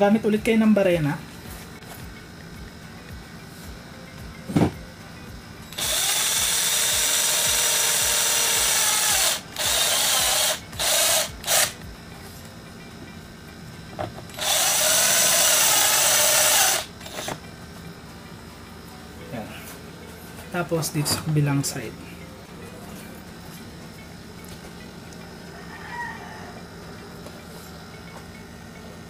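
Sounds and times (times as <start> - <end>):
electric drill boring plastic: 5.7 - 11.8, 14.3 - 17.4.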